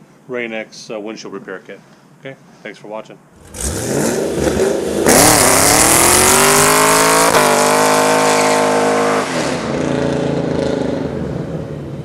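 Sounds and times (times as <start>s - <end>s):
car engine revving hard: 3.4s - 11.8s.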